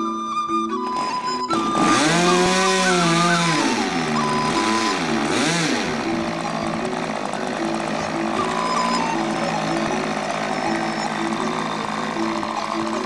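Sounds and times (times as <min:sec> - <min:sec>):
background music: 0:00.0 - 0:13.0
model airplane engine revving: 0:00.7 - 0:13.0.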